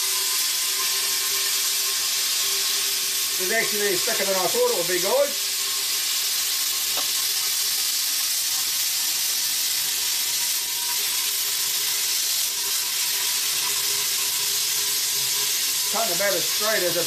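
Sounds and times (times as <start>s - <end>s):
plasma cutter hissing: 15.9s - 17.0s.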